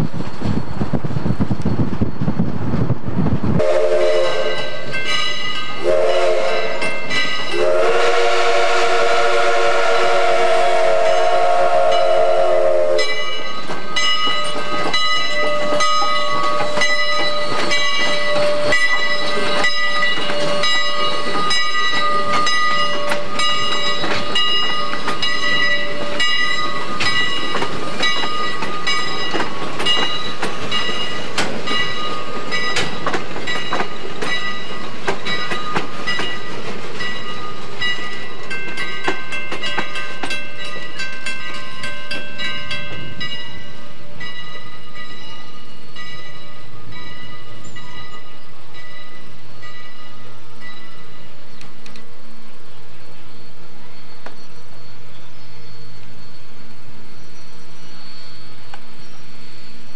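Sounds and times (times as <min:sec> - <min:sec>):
train wheels clicking over rail joints: 0:00.1 - 0:43.6
steam locomotive whistle: 0:03.6 - 0:29.2.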